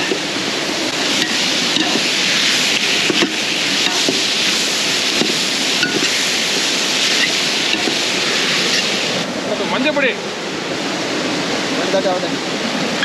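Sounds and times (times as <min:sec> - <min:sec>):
steady rushing hiss: 0:00.0 - 0:13.0
metal ladle scraping pot: 0:00.9 - 0:02.4, 0:03.0 - 0:04.3, 0:05.1 - 0:06.3.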